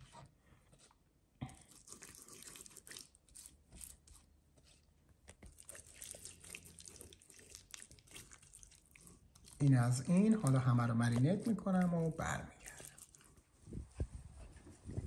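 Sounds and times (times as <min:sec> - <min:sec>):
hands squelching in raw chicken: 0:01.6 - 0:04.3, 0:05.3 - 0:13.5.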